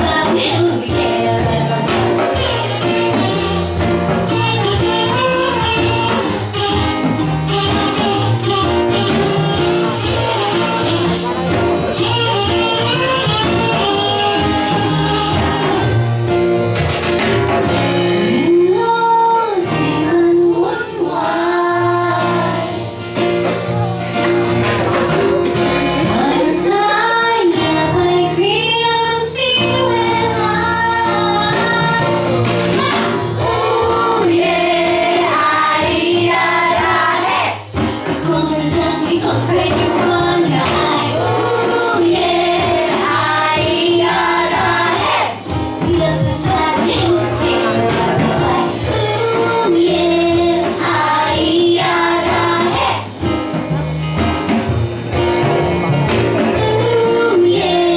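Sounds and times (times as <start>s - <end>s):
woman singing: 0.0s - 3.5s, 10.0s - 15.8s, 18.2s - 22.9s, 25.9s - 53.1s, 56.5s - 57.9s
plucked double bass: 23.4s - 27.0s.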